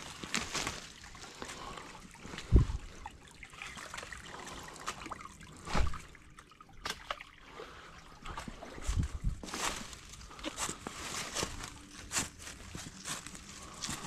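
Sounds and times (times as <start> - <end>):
leaves and twigs crackling underfoot: 0.0 - 2.8, 8.4 - 14.0.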